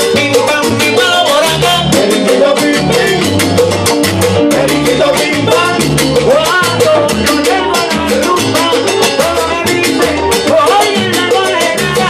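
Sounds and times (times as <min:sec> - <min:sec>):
latin band music: 0:00.0 - 0:12.0.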